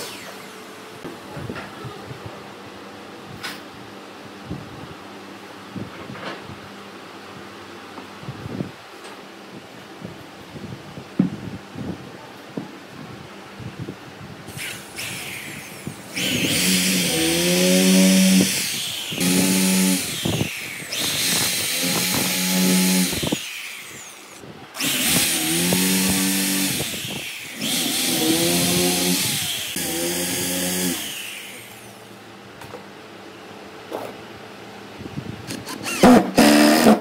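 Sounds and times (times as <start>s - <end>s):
power tool motor with hiss: 14.5s - 32.1s.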